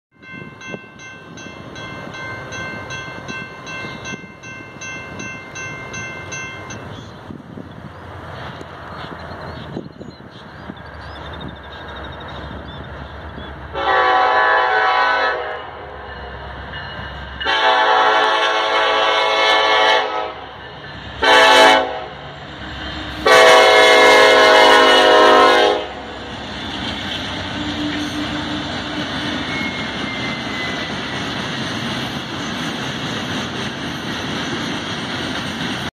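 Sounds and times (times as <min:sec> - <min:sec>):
train wheels on rails: 0:00.2 - 0:35.9
locomotive horn blasts: 0:13.7 - 0:16.3, 0:17.4 - 0:20.6, 0:21.2 - 0:22.2, 0:23.0 - 0:26.2.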